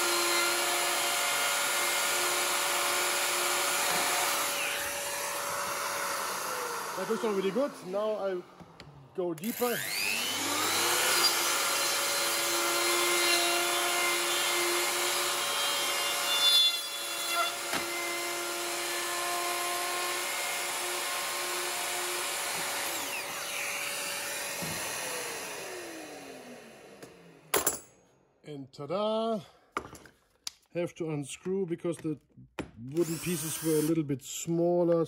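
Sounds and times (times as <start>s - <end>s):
router motor spinning down: 0.0s - 15.6s, 17.9s - 27.3s
router cutting wood: 0.0s - 27.5s, 33.0s - 34.0s.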